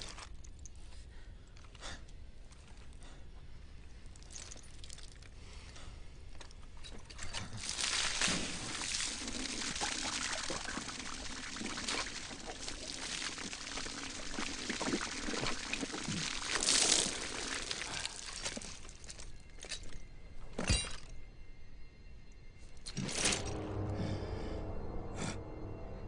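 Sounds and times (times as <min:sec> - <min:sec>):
water from a hose splashing: 0:07.5 - 0:19.2.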